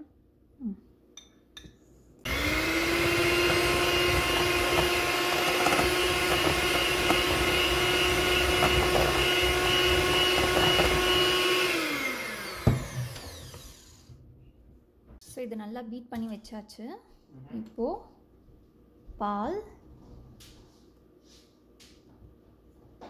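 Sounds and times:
electric hand mixer whipping batter: 0:02.3 - 0:14.1.

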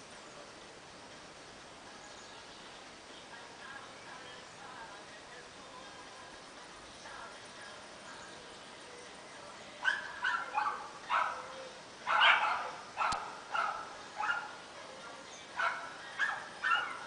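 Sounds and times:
dog barking: 0:09.8 - 0:15.0, 0:15.6 - 0:17.0.

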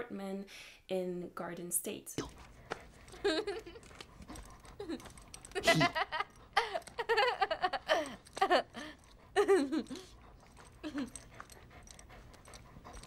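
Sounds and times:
young woman giggling: 0:03.2 - 0:03.8, 0:04.8 - 0:10.2, 0:10.8 - 0:11.2.

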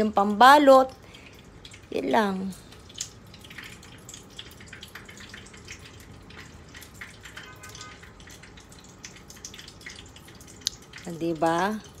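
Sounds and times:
oil sizzling in a frying pan: 0:00.0 - 0:12.0
small crackling pops: 0:02.7 - 0:11.7.

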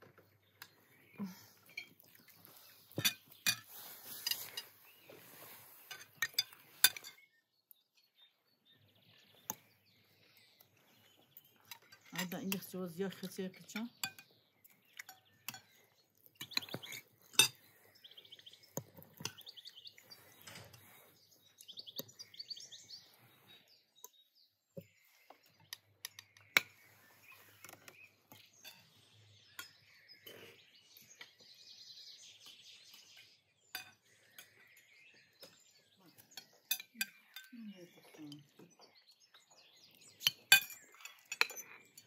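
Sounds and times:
birds chirping: 0:00.0 - 0:42.0
cutlery clinking on plates: 0:01.6 - 0:02.1, 0:02.9 - 0:04.8, 0:05.9 - 0:07.2, 0:14.0 - 0:14.3, 0:14.9 - 0:15.8, 0:16.4 - 0:17.7, 0:36.2 - 0:37.5, 0:40.2 - 0:42.0.

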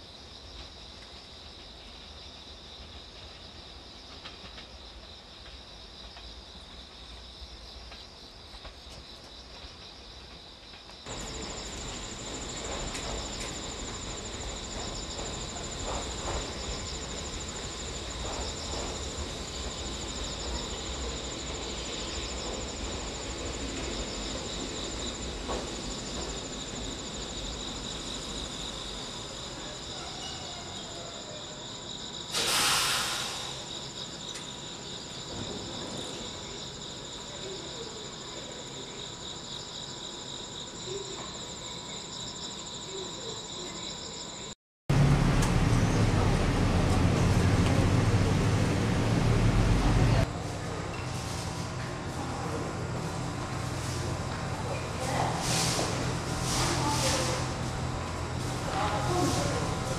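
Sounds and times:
insects trilling: 0:00.0 - 0:44.6
high-pitched insect trill: 0:04.7 - 0:44.6
low outdoor rumble: 0:44.9 - 0:55.4.

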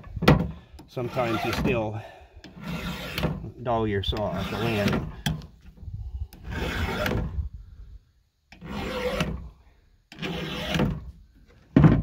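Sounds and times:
file rasping on saw chain: 0:01.0 - 0:01.8, 0:02.5 - 0:03.4, 0:04.2 - 0:05.2, 0:06.4 - 0:07.2, 0:08.5 - 0:09.4, 0:10.2 - 0:10.8.

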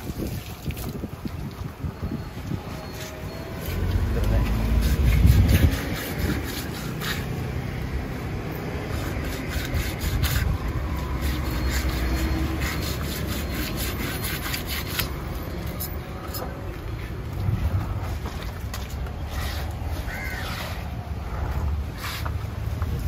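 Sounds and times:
knife scraping fish scales: 0:04.4 - 0:07.4, 0:08.9 - 0:16.4.

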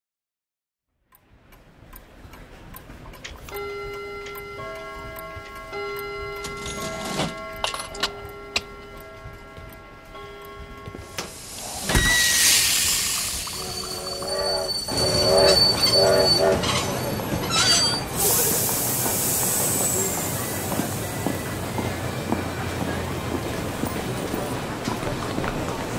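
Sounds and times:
pendulum clock ticking: 0:01.1 - 0:11.9, 0:12.8 - 0:22.8
steady held tones: 0:03.5 - 0:19.2
loud rushing hiss: 0:11.2 - 0:16.6, 0:18.0 - 0:21.2.

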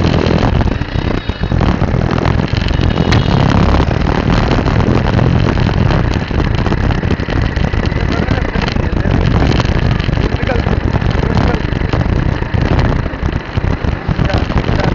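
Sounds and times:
vehicle engine and road rumble: 0:00.0 - 0:14.9.

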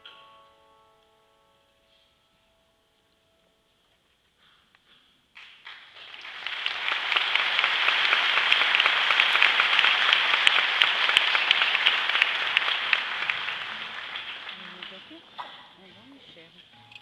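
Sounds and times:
audience applauding: 0:05.4 - 0:15.3.

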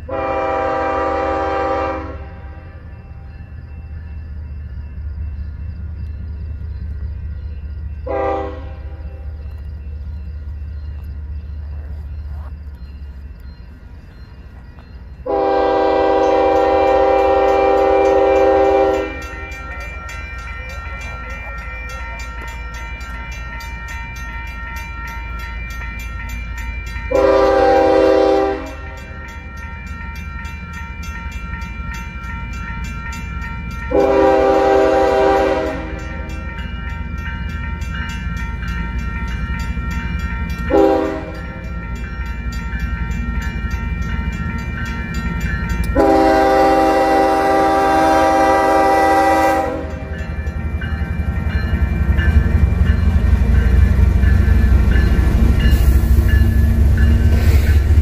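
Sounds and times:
crossing bell ringing: 0:00.0 - 0:58.0
train rumbling: 0:00.0 - 0:58.0
locomotive air horn blasts: 0:00.1 - 0:02.4, 0:08.1 - 0:09.0, 0:15.3 - 0:19.4, 0:27.1 - 0:28.9, 0:33.9 - 0:36.2, 0:40.7 - 0:41.4, 0:45.9 - 0:50.2.

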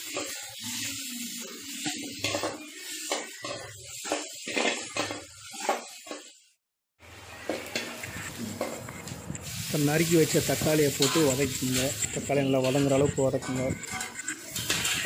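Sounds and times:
metal spatula scraping a pot: 0:00.0 - 0:06.3, 0:10.4 - 0:15.0
food sizzling in oil: 0:00.0 - 0:15.0.

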